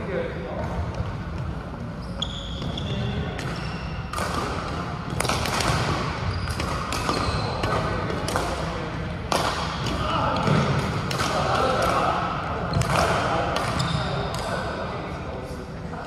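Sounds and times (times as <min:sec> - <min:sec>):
shoe squeak: 0:01.9 - 0:04.1, 0:06.2 - 0:07.6, 0:13.8 - 0:14.3
racket hitting shuttlecock: 0:03.3 - 0:14.6.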